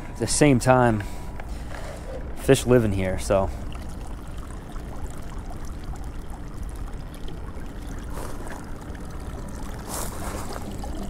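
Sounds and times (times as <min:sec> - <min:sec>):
water sloshing: 0:00.4 - 0:11.0
water pouring and trickling: 0:00.9 - 0:11.0.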